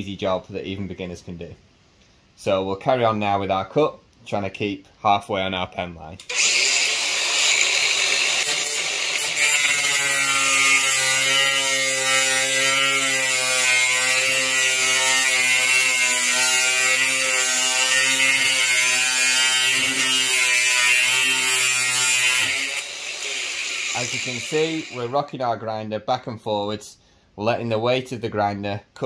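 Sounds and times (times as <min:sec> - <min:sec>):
angle grinder cutting steel: 0:06.3 - 0:25.3.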